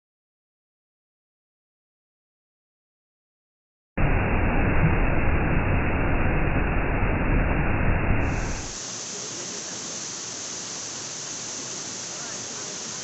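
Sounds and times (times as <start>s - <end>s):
waterfall rushing over rocks: 8.2s - 13.0s.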